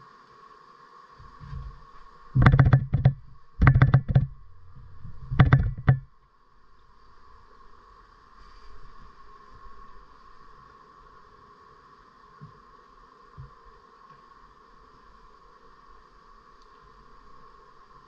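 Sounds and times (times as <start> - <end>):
faint steady hum: 0.0 - 18.0
rapid knocking and rattling: 2.4 - 6.1.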